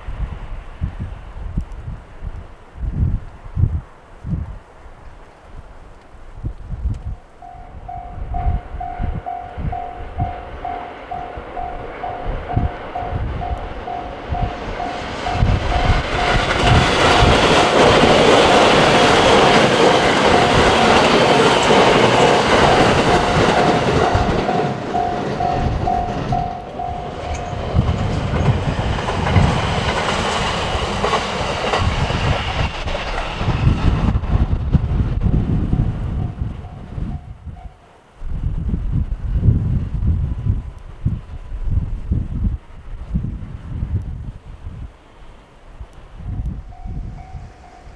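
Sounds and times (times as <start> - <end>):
train wheels rumbling on rail: 0.0 - 47.9
wind buffeting microphone: 0.0 - 47.9
level-crossing warning bell ringing: 7.4 - 28.5, 35.8 - 37.8, 46.6 - 47.9.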